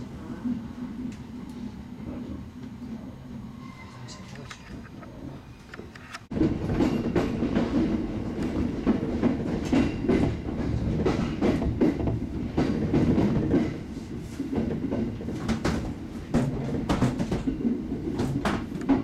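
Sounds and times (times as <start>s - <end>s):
train rumbling: 0.0s - 19.0s
wheel clacks over rail joints: 14.5s - 19.0s.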